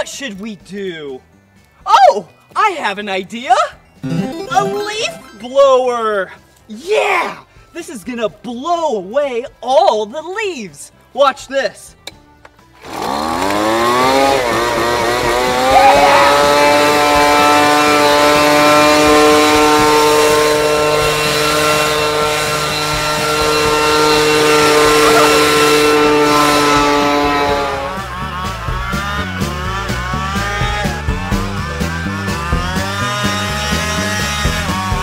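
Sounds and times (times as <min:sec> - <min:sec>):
leaf blower engine revving: 0:12.8 - 0:35.0.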